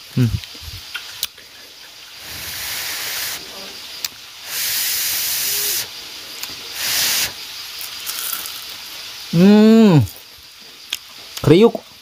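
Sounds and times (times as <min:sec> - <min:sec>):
person vocalizing: 0:00.2 - 0:00.4, 0:09.4 - 0:10.2
short bursts of hissing: 0:00.7 - 0:10.3.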